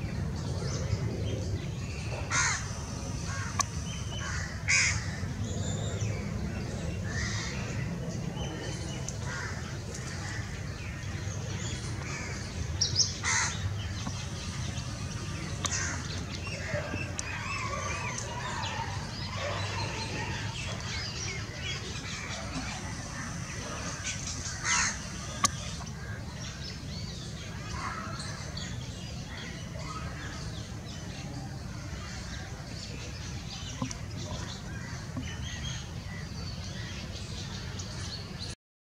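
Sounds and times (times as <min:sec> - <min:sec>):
steady low hum: 0:00.0 - 0:38.1
wild birds calling: 0:00.0 - 0:38.5.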